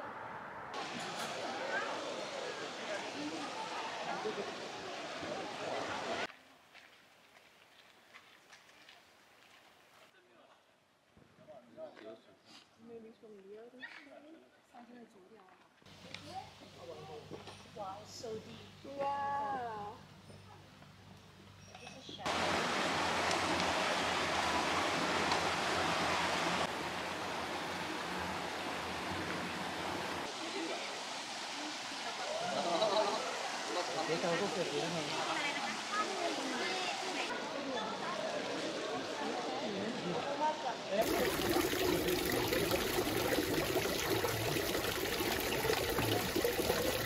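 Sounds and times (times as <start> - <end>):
water splashing at water wheel: 22.3 - 32.5, 41.0 - 47.0
water filling plastic bottle: 41.0 - 47.0
water trickling over rock: 41.0 - 47.0.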